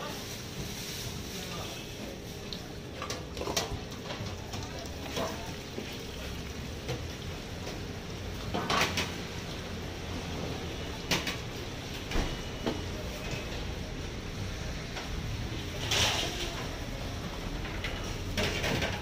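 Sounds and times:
steel bowls clanking: 0:02.9 - 0:06.3.

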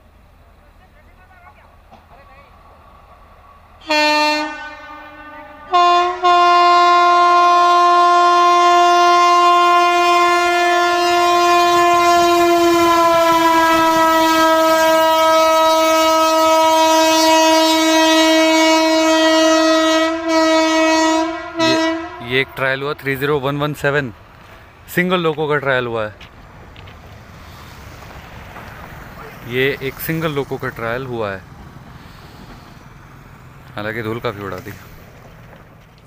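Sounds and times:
locomotive horn blasts: 0:03.8 - 0:22.8.

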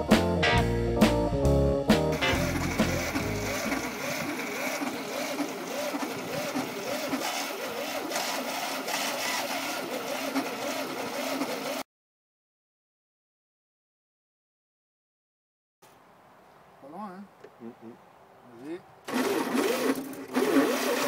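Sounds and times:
engine cranking without catching: 0:02.1 - 0:11.8, 0:19.0 - 0:21.0.

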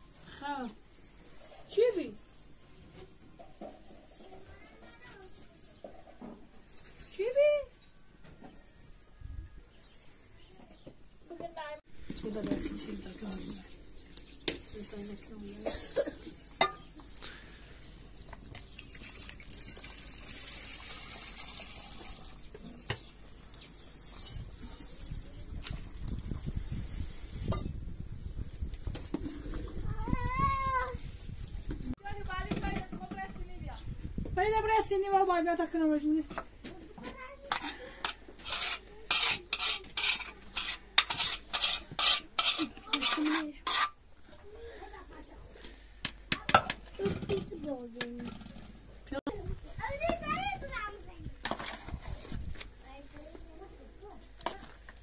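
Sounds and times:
metal spoon scraping pan: 0:37.5 - 0:44.0.

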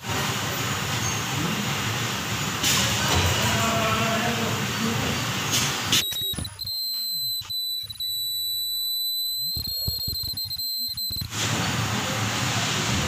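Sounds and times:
machine air and mechanical noise: 0:00.0 - 0:08.5, 0:09.4 - 0:13.0
high-pitched whine: 0:06.0 - 0:11.3.

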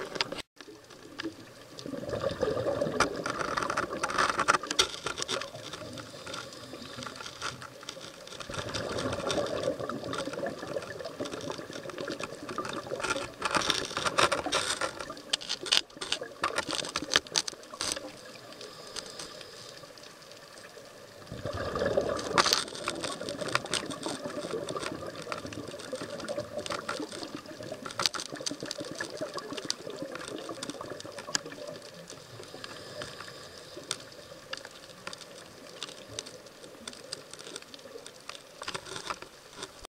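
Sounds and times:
crackle of small clicks: 0:00.0 - 0:39.9
diver's exhaled bubbles gushing: 0:01.0 - 0:04.7, 0:08.5 - 0:13.4, 0:20.9 - 0:33.0.

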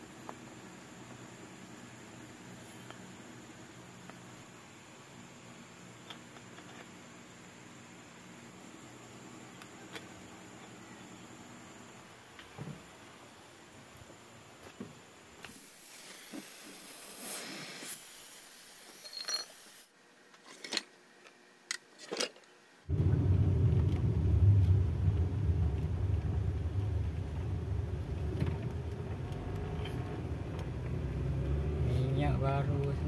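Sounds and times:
car driving rumble inside cabin: 0:22.9 - 0:33.0.

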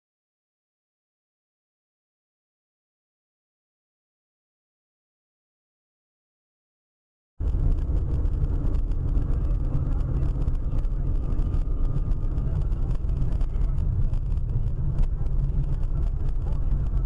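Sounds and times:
car engine and road noise: 0:07.4 - 0:17.0.

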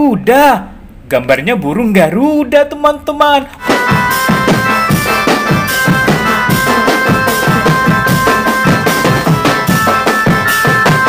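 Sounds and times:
fast steady drum strokes: 0:03.6 - 0:11.0
held high tone: 0:03.6 - 0:11.0.

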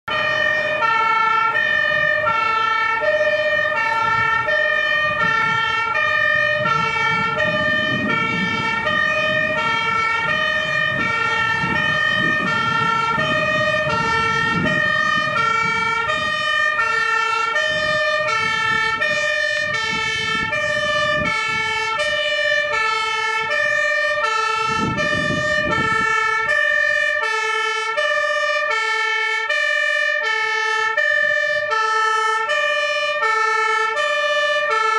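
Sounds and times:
fire engine two-tone siren: 0:00.0 - 0:34.9.

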